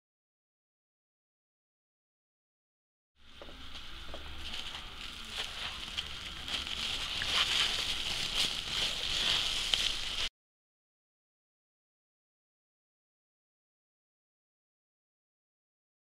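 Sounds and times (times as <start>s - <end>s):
bubble wrap crinkling: 3.5s - 10.3s.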